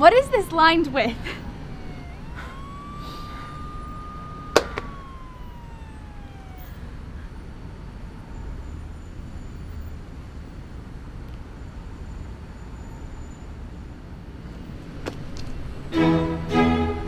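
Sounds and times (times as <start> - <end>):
distant siren wailing: 0.0 - 10.0
low traffic rumble: 0.0 - 17.0.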